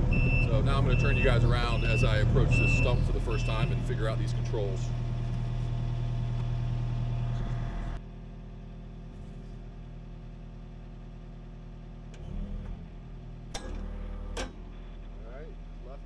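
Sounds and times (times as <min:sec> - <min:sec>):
excavator engine running: 0:00.0 - 0:16.0.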